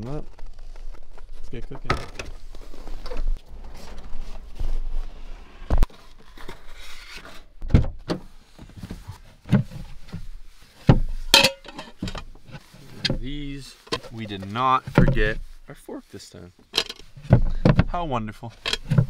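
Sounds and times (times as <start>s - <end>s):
rustling and handling noise: 0.0s - 19.0s.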